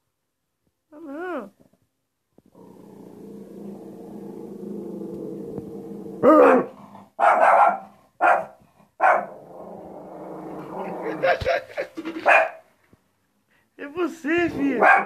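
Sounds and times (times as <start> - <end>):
dog growling low: 2.5 - 7.2, 9.2 - 11.4
dog barking sharply: 6.3 - 9.3, 12.2 - 12.6, 14.8 - 15.0.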